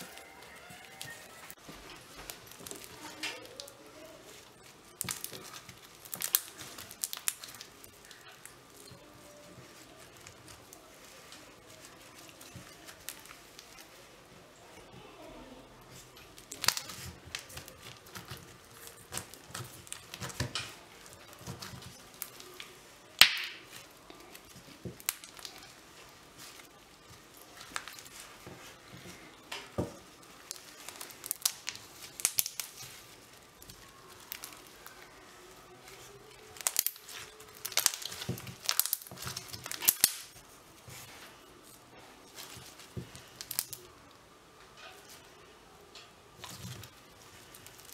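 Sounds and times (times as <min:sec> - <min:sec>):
crunchy slime being squeezed: 0:02.2 - 0:13.8, 0:29.7 - 0:40.4
loud slime pop: 0:23.2 - 0:23.7.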